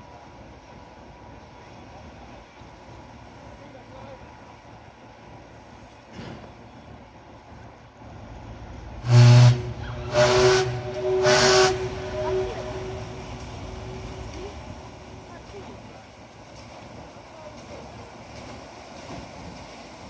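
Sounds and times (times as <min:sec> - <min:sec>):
steam whistle blasts: 0:09.0 - 0:14.8.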